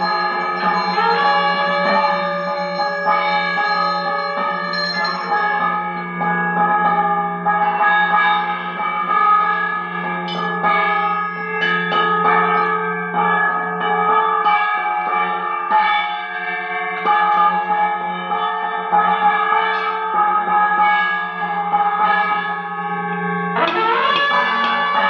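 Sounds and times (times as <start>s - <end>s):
gong struck: 0.0s - 5.9s, 23.5s - 25.0s
metal bells ringing: 0.0s - 6.2s, 9.2s - 15.7s, 16.5s - 20.3s, 23.6s - 25.0s.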